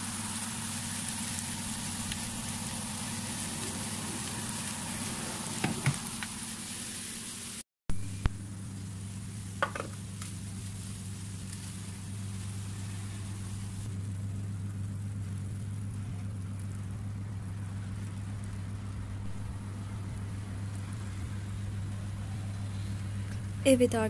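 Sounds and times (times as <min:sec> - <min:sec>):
appliance electrical hum: 0:00.0 - 0:24.0
faint sizzling food: 0:00.0 - 0:24.0.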